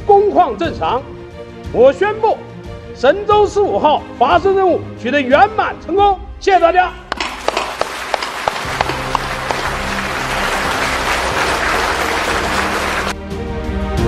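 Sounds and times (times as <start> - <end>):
background music: 0.0 - 14.0
crowd applauding: 7.1 - 13.2.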